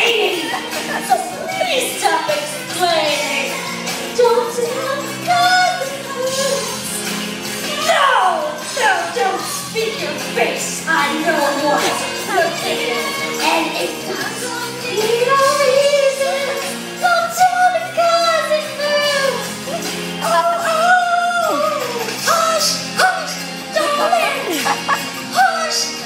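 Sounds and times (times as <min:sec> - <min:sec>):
person singing into microphone: 0:07.6 - 0:26.0.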